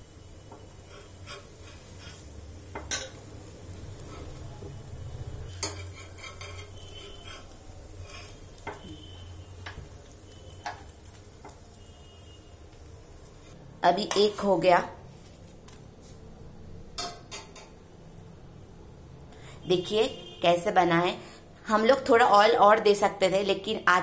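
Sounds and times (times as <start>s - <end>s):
faint sizzle of frying: 0.0s - 24.0s
metal spatula scraping on steel pan: 0.5s - 3.2s, 5.5s - 9.8s.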